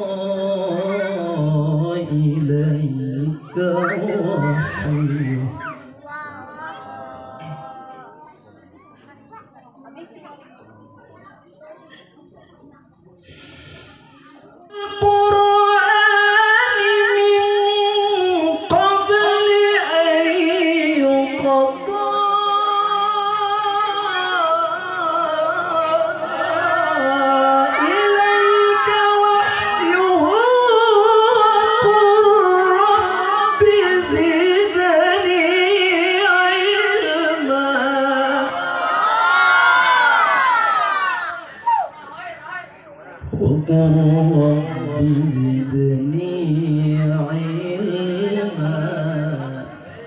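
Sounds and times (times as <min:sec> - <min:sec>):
man reciting melodically into a microphone: 0:00.0 - 0:06.0, 0:14.6 - 0:38.6, 0:42.2 - 0:50.0.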